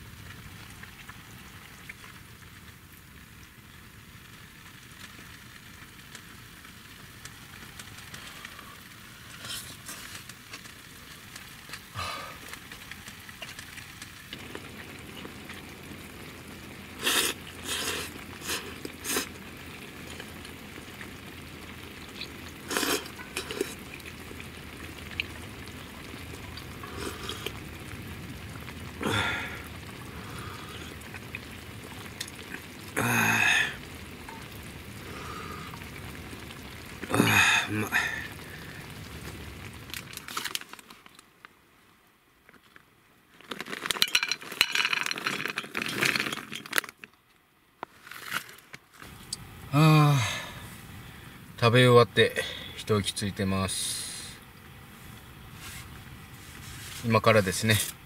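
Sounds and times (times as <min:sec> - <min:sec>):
steady hiss: 0:00.0 - 0:46.8, 0:47.7 - 0:58.0
person slurping noodles: 0:17.0 - 0:19.4, 0:22.6 - 0:23.9, 0:26.8 - 0:27.6.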